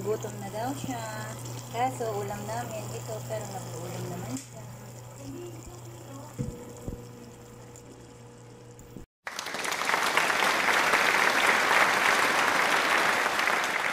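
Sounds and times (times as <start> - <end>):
crowd clapping: 9.2 - 13.9.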